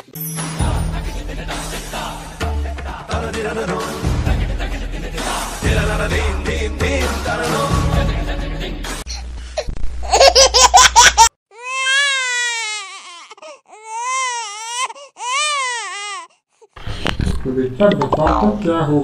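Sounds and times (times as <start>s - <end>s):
comic crying wails: 10.0s - 16.3s.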